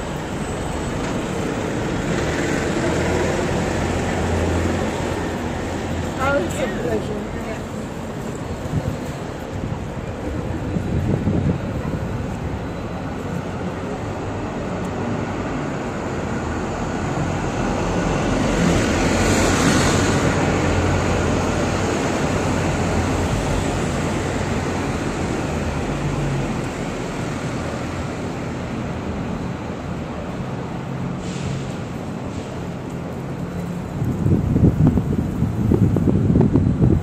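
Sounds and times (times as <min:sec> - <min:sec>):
hum of road traffic: 0:00.0 - 0:37.0.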